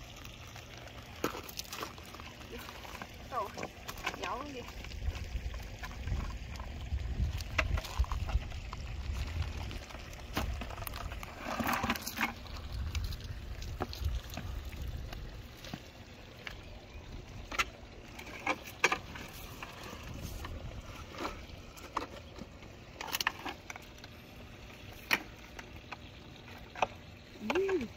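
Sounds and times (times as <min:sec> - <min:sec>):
fish rattling in plastic bucket: 0:00.3 - 0:16.5, 0:17.4 - 0:27.9
wind rumble on microphone: 0:04.6 - 0:15.8, 0:19.1 - 0:21.8.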